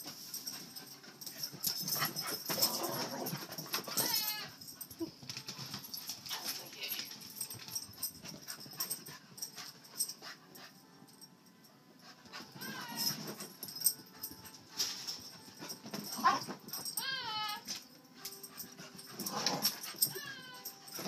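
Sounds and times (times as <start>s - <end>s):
dog whining yelps: 12.4s - 13.3s, 19.3s - 20.9s.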